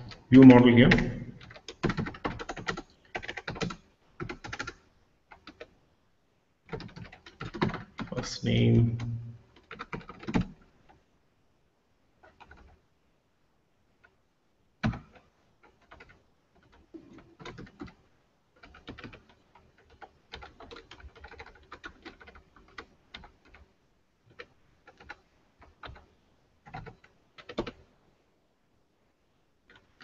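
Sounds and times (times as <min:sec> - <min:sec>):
typing on computer keyboard: 0:00.9 - 0:05.8, 0:06.6 - 0:08.2, 0:09.0 - 0:11.0, 0:12.2 - 0:12.8, 0:14.8 - 0:27.9, 0:29.7 - 0:30.0.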